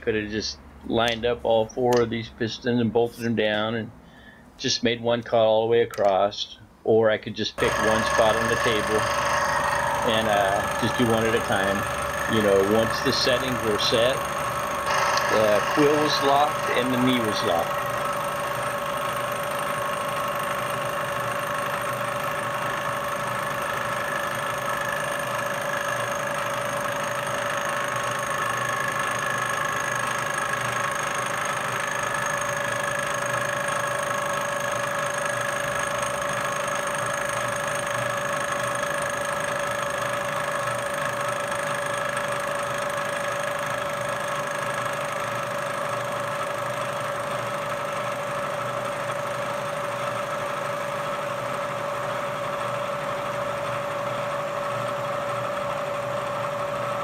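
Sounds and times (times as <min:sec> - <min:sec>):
milling machine cutting metal: 0:07.6 - 0:57.0.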